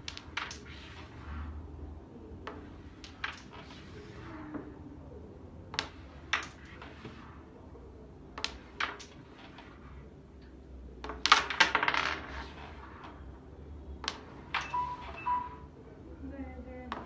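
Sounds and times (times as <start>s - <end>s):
carrom pieces clacking: 0.0s - 1.3s, 2.4s - 4.0s, 5.7s - 7.3s, 8.3s - 13.3s, 14.0s - 15.4s.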